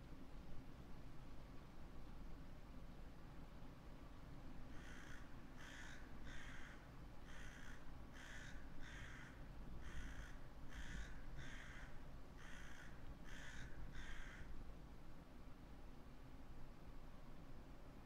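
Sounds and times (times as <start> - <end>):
low wind rumble: 0.0 - 18.0
crow cawing: 4.7 - 14.6.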